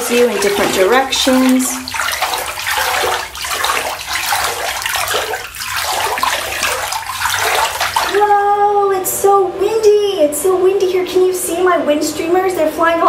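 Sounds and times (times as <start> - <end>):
water splashing in bathtub: 0.0 - 8.5.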